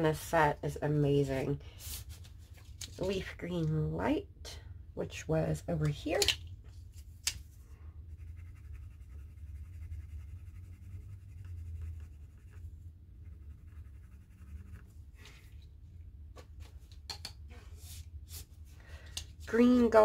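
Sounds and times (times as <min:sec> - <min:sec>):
low steady hum: 0:00.0 - 0:20.0
colored pencil scratching on paper: 0:08.1 - 0:15.0.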